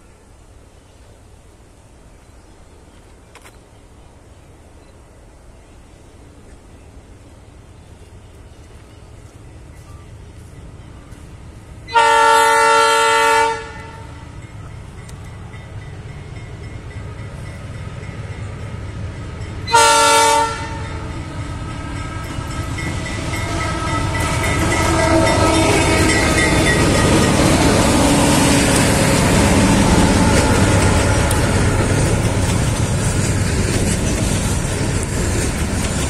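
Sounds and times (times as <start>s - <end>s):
diesel engines and rolling wagons: 0.0s - 36.0s
locomotive air horn blasts: 11.9s - 14.2s, 19.6s - 26.6s.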